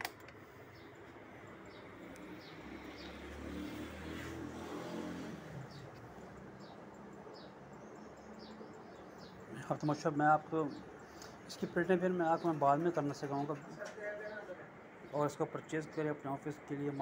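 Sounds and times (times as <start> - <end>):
small bird chirping: 5.7 - 10.0.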